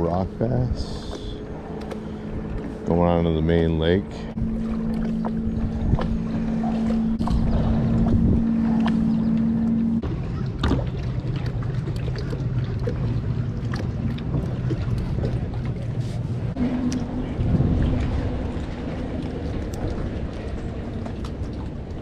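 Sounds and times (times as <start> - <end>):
kayak drive humming: 0.0 - 22.0
wind on microphone: 4.2 - 10.8, 12.3 - 22.0.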